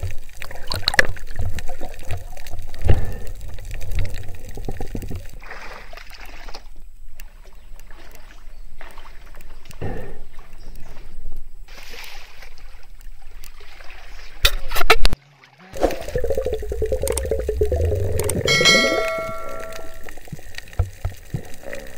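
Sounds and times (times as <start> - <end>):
water splashing and lapping: 0.0 - 21.9
low underwater rumble: 15.8 - 21.0.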